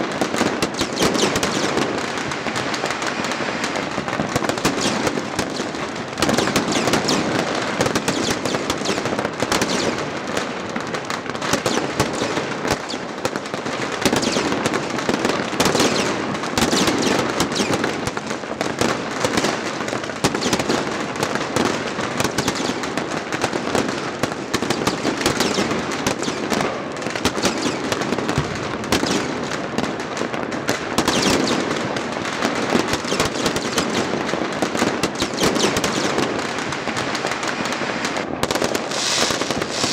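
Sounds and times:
fireworks and firecrackers bangs: 0:00.0 - 0:39.9.

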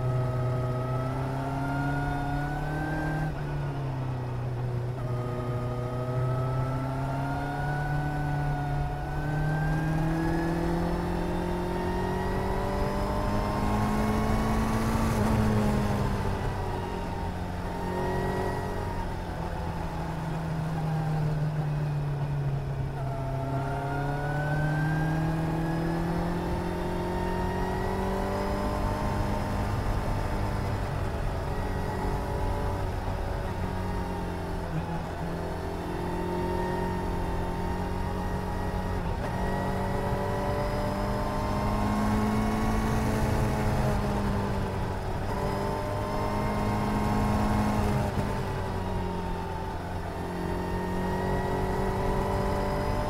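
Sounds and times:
motorcycle engine revving: 0:23.1 - 0:53.0.

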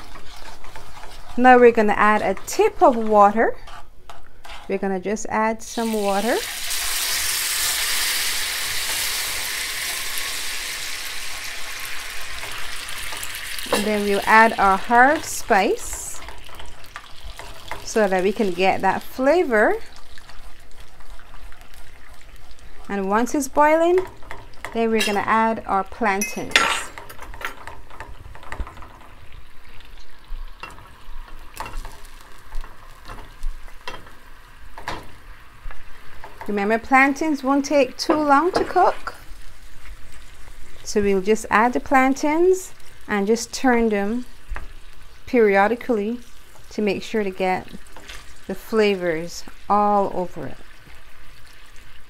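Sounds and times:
wooden spoon stirring: 0:00.0 - 0:05.0, 0:12.2 - 0:39.2
oil and sugar sizzling in a pan: 0:00.0 - 0:52.0.

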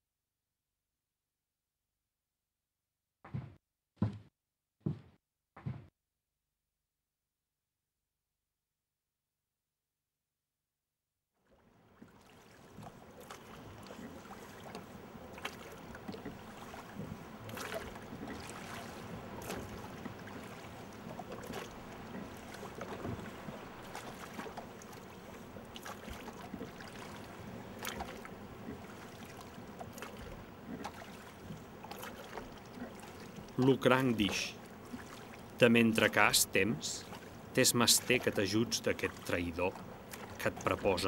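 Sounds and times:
water noise: 0:11.4 - 0:41.0
wind: 0:11.4 - 0:41.0.

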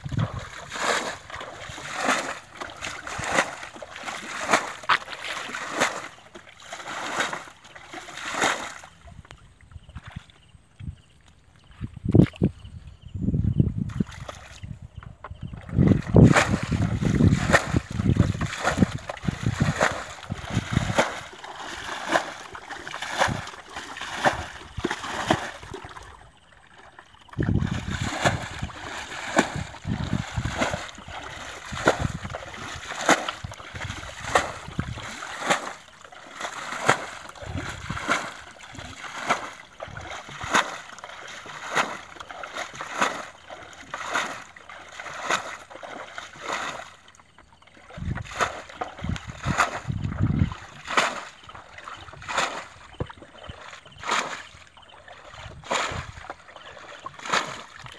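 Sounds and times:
water splashing from bucket: 0:00.0 - 0:09.4, 0:15.4 - 0:57.9.

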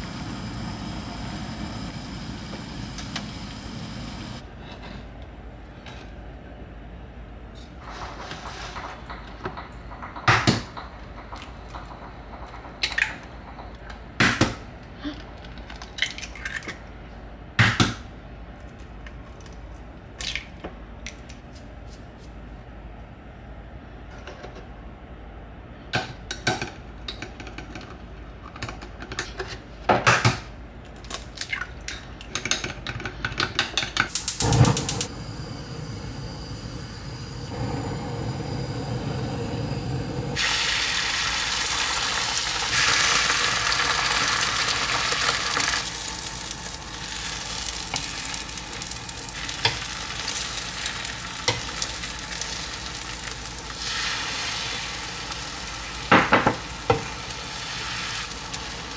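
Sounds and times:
food sizzling in frying pan: 0:34.5 - 0:58.9.

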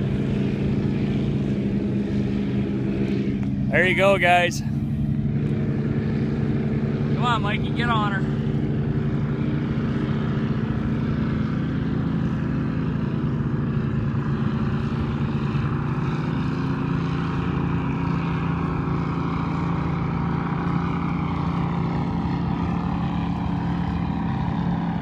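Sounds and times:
powerboat engines running: 0:00.0 - 0:25.0
wind: 0:00.0 - 0:25.0.

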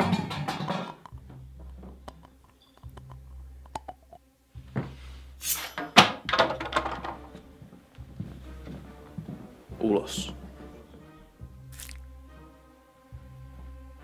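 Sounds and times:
coat rustling and scraping: 0:04.7 - 0:05.8.

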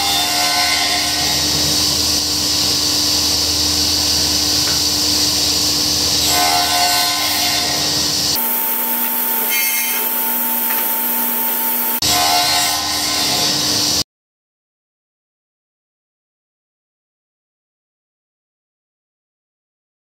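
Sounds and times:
table saw cutting wood: 0:00.0 - 0:14.0.

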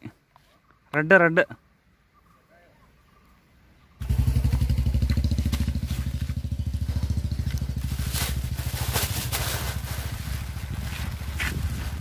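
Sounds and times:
scooter engine idling: 0:04.0 - 0:12.0
crackling rustles: 0:04.9 - 0:12.0.

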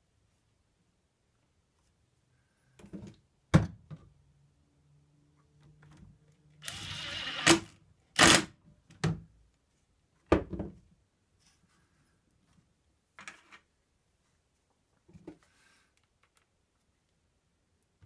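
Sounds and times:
cordless drill running: 0:06.6 - 0:08.4.

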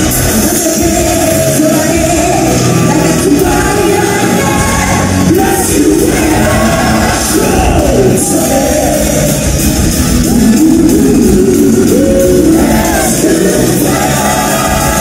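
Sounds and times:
loud rock band: 0:00.0 - 0:15.0
woman singing into a microphone: 0:00.3 - 0:06.6.

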